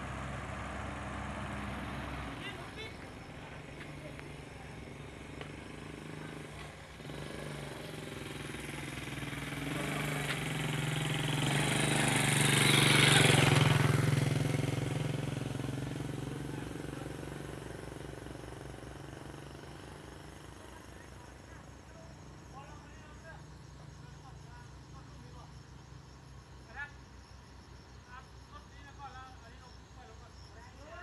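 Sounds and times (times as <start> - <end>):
low engine hum: 0.0 - 17.1
truck passing by: 0.0 - 26.4.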